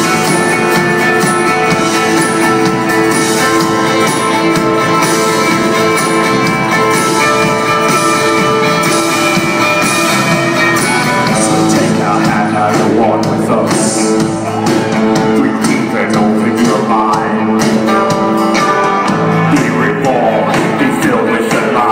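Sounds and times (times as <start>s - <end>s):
live rock band playing: 0.0s - 21.9s
man singing: 10.4s - 21.9s.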